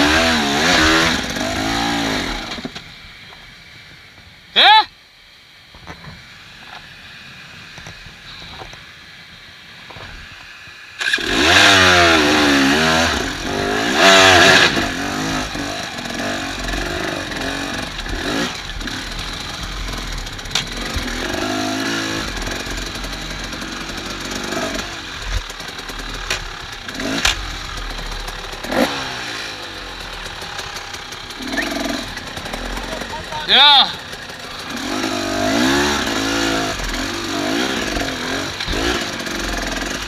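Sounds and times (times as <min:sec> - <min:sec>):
two-stroke motorcycle engine revving: 0:00.0 - 0:02.8, 0:11.0 - 0:40.0.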